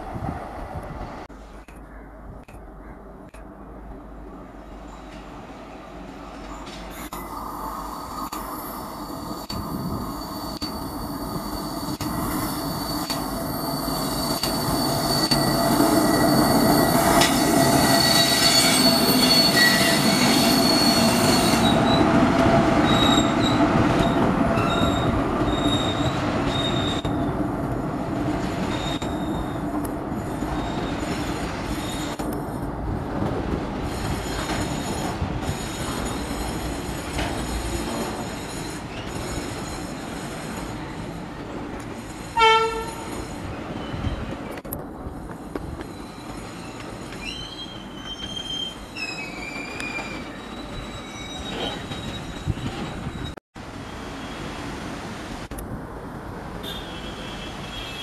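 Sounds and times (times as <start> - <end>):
train wheels rumbling on rails: 3.2 - 56.6
wheels squealing: 8.9 - 22.2, 22.8 - 27.3, 28.6 - 32.2, 45.7 - 53.4.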